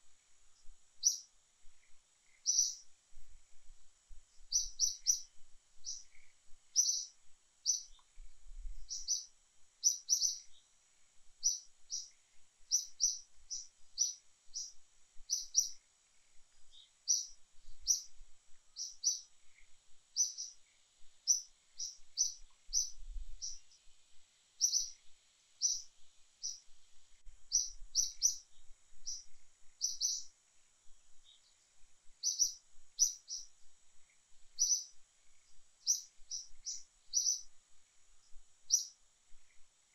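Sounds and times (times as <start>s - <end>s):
faint high whine: 0.0s - 39.9s
small bird chirping: 0.0s - 39.9s.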